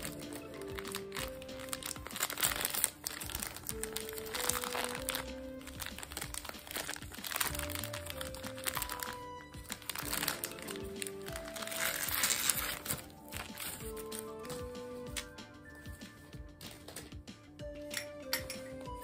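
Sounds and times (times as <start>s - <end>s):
plastic wrapper crinkling: 0.0s - 15.3s
background music with held notes: 0.0s - 19.0s.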